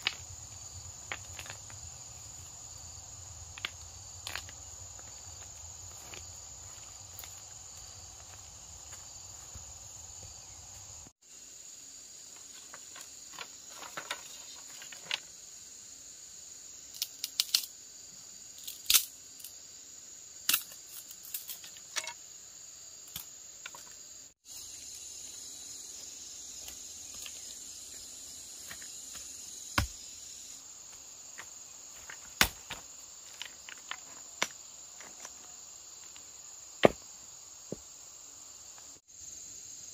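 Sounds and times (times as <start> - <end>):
stones and bamboo knocking: 0.0 - 0.3, 1.0 - 1.8, 12.4 - 15.3, 31.4 - 35.4, 36.8 - 37.0
insects droning: 0.0 - 39.9.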